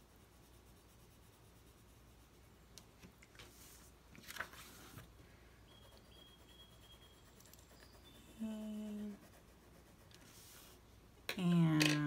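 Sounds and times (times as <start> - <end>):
pencil scratching on paper: 0.0 - 2.5, 5.7 - 10.8
paper rustling: 3.3 - 5.1
woman humming: 8.3 - 9.2.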